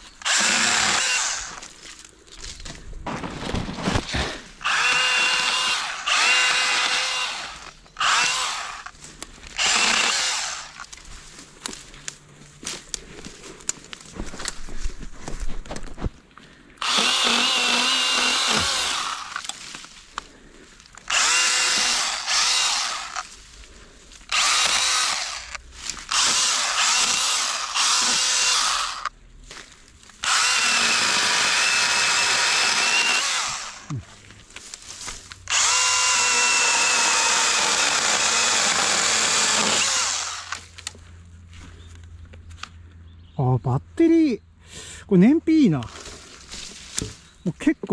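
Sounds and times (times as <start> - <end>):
chainsaw motor whine: 0.2 - 1.7, 4.6 - 10.9, 16.8 - 19.6, 21.0 - 23.3, 24.3 - 29.1, 30.2 - 34.0, 35.5 - 41.0
chain cutting through branches: 24.3 - 29.1.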